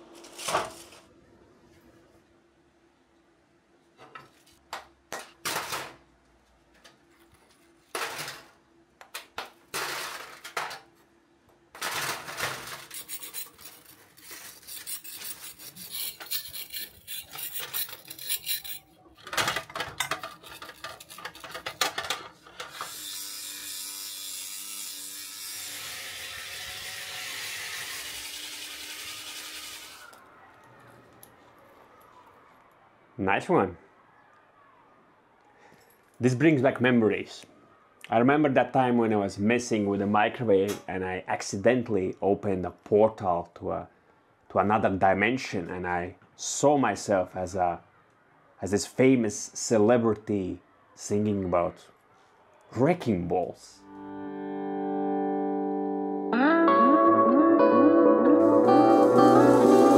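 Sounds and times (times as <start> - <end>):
metal scraper grating: 12.6 - 19.0, 19.6 - 28.7.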